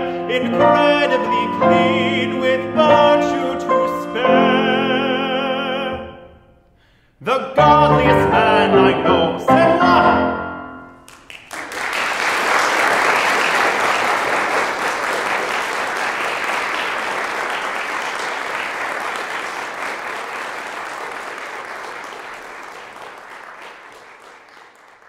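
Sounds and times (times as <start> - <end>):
audience applauding: 11.1 - 25.0.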